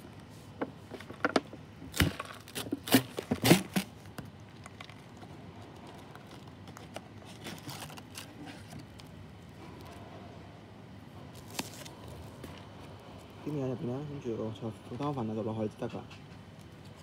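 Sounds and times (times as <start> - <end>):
packaging crinkling and tearing: 1.9 - 9.2, 11.3 - 12.6.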